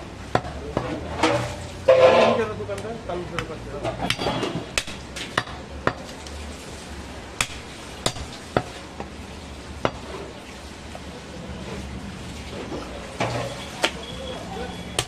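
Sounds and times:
cleaver chopping meat on wood: 3.4s - 6.1s, 7.4s - 9.1s.

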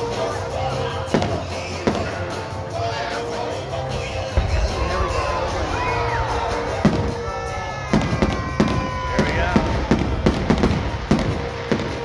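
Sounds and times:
fireworks bursting: 3.9s - 12.0s.

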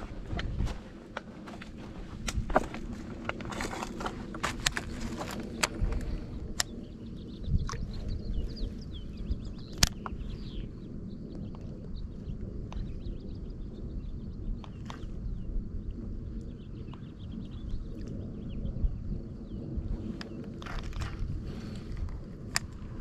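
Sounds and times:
footsteps on rocks: 0.0s - 6.1s
small birds chirping: 0.0s - 23.0s.

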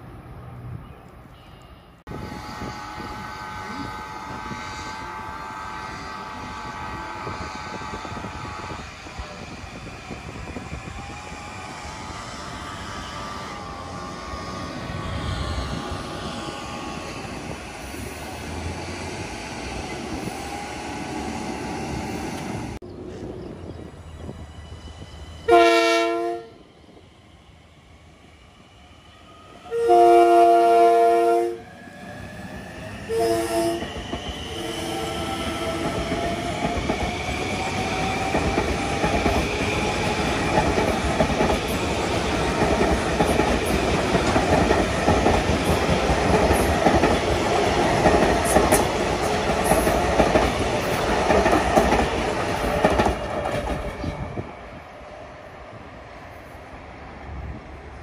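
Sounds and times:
train horn blasts: 2.1s - 9.0s, 11.9s - 17.3s, 25.5s - 26.6s, 29.6s - 31.6s, 33.1s - 33.9s
wheels clacking over rail joints: 35.6s - 54.3s.

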